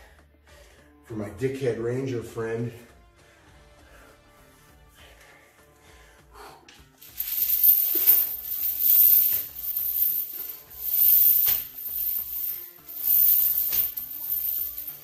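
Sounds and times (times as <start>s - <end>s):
chains rattling on rubber mat: 7.0s - 15.0s.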